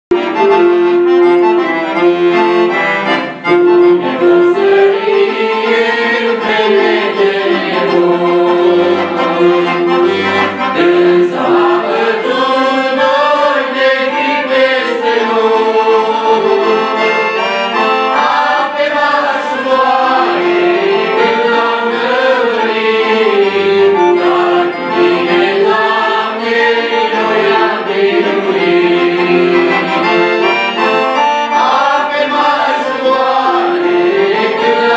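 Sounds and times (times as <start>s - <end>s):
piano accordion: 0.1s - 34.9s
saxophone melody: 0.1s - 34.9s.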